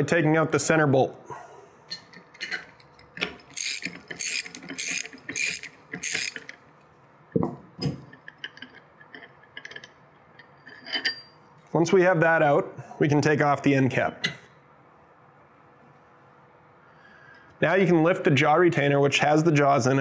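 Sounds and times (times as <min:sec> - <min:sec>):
ratchet wrench clicking: 0:03.5 - 0:06.6
wrench set down knocks: 0:07.4 - 0:11.3.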